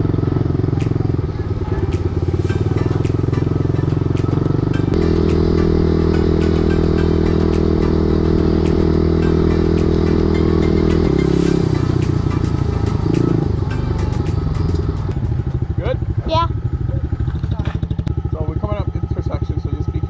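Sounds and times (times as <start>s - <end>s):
dirt bike engine running: 0.0s - 20.0s
sharp ticks: 2.9s - 11.2s, 12.0s - 15.6s.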